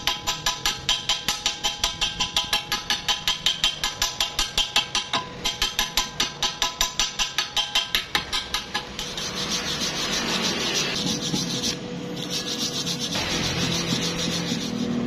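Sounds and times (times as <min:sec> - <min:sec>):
chipping hammer tapping metal: 0:00.0 - 0:10.0
wire brush scrubbing metal: 0:08.1 - 0:15.0.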